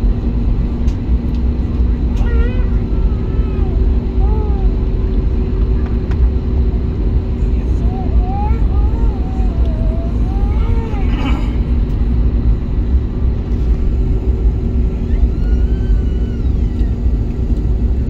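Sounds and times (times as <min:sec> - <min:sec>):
aircraft engines low rumble: 0:00.0 - 0:18.0
cabin hum: 0:01.6 - 0:18.0
faint voices: 0:07.1 - 0:11.8.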